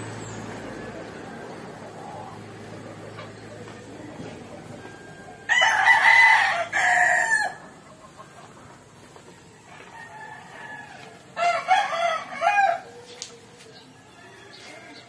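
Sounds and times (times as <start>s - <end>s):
rooster crowing: 4.9s - 7.8s, 9.5s - 12.9s, 14.0s - 15.0s.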